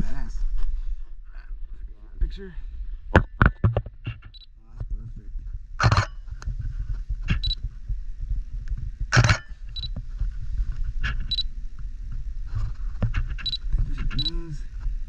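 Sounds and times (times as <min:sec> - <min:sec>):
low rumble: 0:04.2 - 0:15.0
camera shutter clack: 0:05.8 - 0:06.1, 0:09.2 - 0:09.5
short high electronic beeps: 0:07.4 - 0:07.6.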